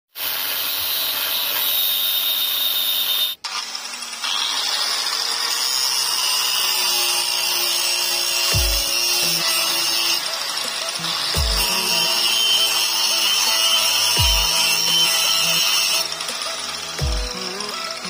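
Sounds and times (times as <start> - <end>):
angle grinder cutting steel: 0.1 - 18.0.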